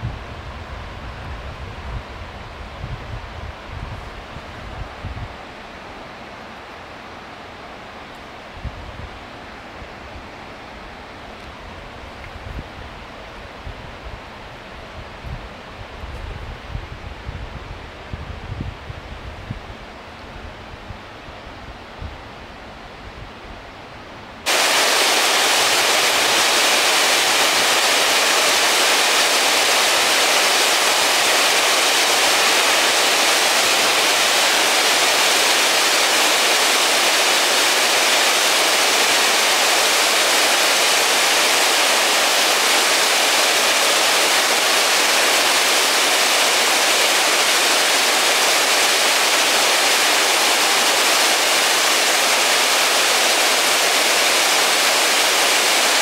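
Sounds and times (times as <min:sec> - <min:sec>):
faint outdoor air: 0:00.0 - 0:56.0
water rushing: 0:24.5 - 0:56.0.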